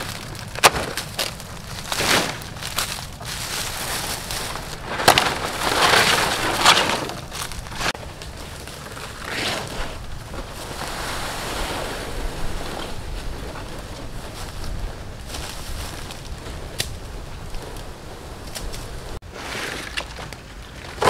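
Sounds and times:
machete chopping stalks: 0.0 - 7.9
stiff fronds rustling: 0.0 - 21.0.

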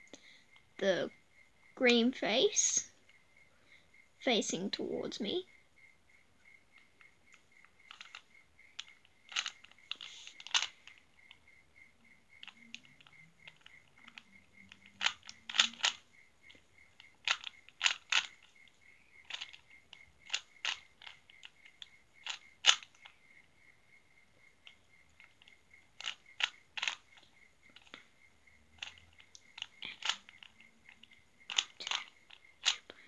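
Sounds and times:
plastic puzzle cube clacks: 6.8 - 11.4, 12.4 - 23.2, 24.6 - 28.1, 28.8 - 33.0.

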